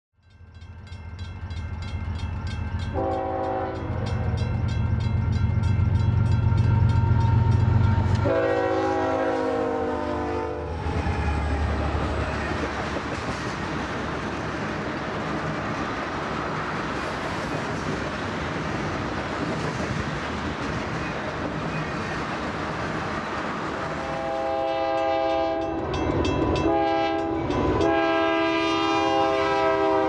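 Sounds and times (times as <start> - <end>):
diesel locomotive engine rumble: 0.2 - 30.0
locomotive horn blast: 2.9 - 4.4, 6.8 - 11.0, 23.9 - 26.0, 26.6 - 30.0
high regular ringing beat: 3.7 - 8.1
rolling rumble of tank cars: 10.7 - 24.6.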